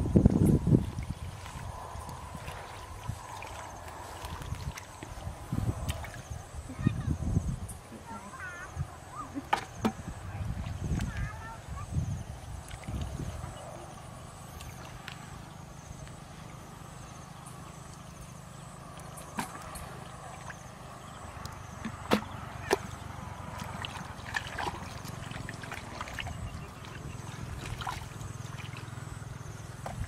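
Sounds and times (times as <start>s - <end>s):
steady low rumble: 0.0s - 7.9s
hands splashing in muddy water: 21.4s - 29.0s.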